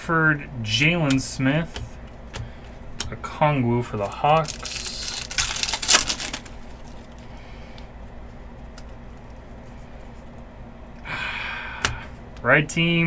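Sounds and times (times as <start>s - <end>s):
crinkly rustling of foil packs: 4.0s - 7.3s.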